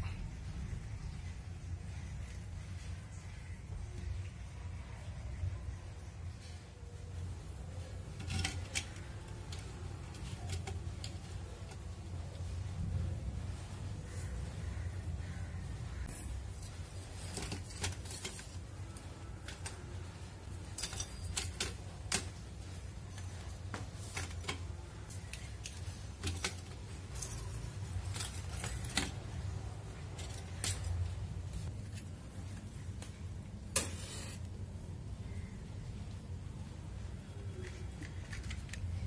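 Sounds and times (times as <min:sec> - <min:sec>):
charcoal clinking on metal: 0:16.2 - 0:31.2.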